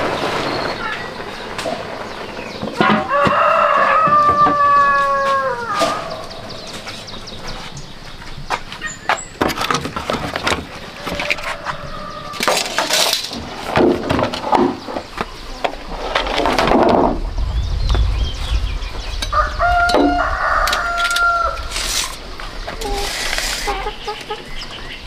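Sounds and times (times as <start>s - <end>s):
rooster crowing: 2.8s - 6.7s, 11.0s - 12.6s, 19.3s - 22.0s
tools and bamboo poles clicking: 8.6s - 16.8s, 19.9s - 22.2s.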